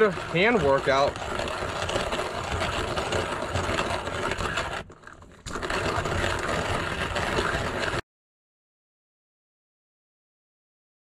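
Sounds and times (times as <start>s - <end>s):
hand coffee grinder grinding: 0.0s - 8.0s.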